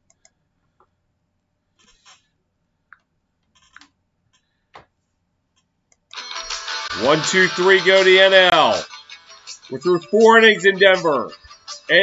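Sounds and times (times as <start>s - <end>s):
faint clicks: 0.0s - 1.0s.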